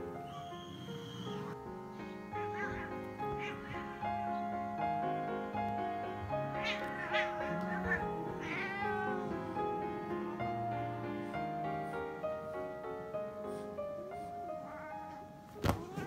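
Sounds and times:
background music sustained notes: 0.0s - 15.5s
cat meowing: 2.2s - 4.8s, 6.2s - 9.6s, 14.6s - 16.0s.

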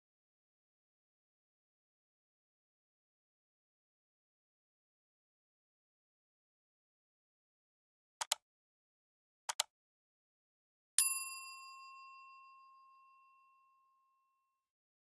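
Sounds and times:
quick double click: 8.2s - 8.4s, 9.5s - 9.7s
bright bell ding: 11.0s - 14.3s.

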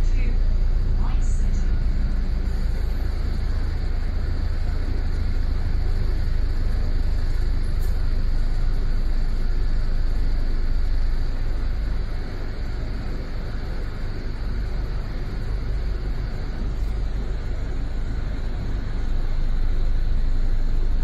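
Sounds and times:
bus engine and road rumble: 0.0s - 21.0s
traffic noise: 0.0s - 21.0s.

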